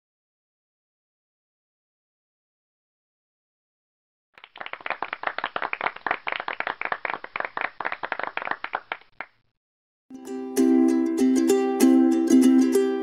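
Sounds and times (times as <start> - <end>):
small group clapping: 4.4 - 9.4
ukulele music: 10.1 - 13.0.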